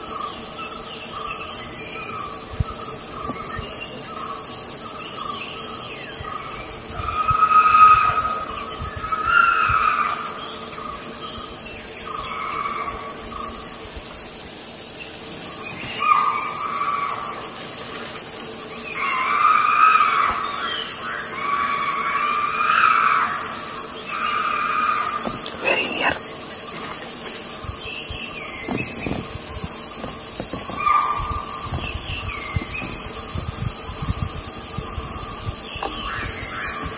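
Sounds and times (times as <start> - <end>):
high drone of insects: 0.0 - 36.9.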